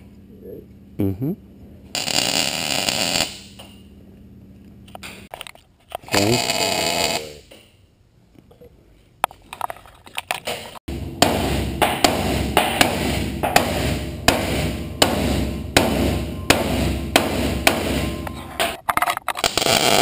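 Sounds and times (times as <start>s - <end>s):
hammer striking steel plate: 10.9s - 18.8s.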